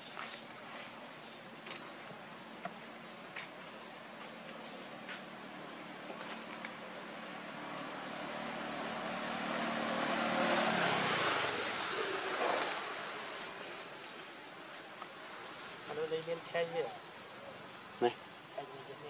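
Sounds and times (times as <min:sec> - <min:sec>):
vehicle engine passing by: 0:07.1 - 0:13.8
insects shrilling: 0:11.1 - 0:19.0.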